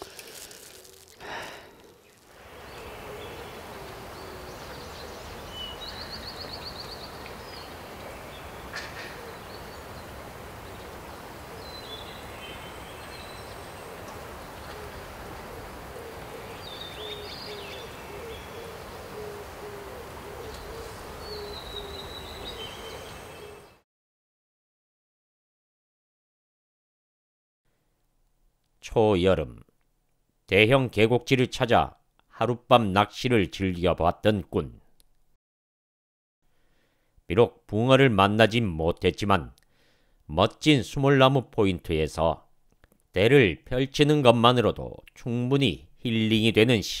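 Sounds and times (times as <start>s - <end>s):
steady hiss: 0.0s - 23.2s
birds chirping: 1.3s - 23.8s
low hooting call: 1.9s - 23.8s.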